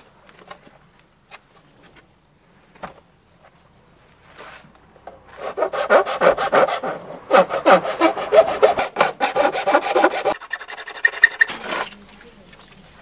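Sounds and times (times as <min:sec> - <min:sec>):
hand tool rasping through plastic: 0:05.4 - 0:11.9.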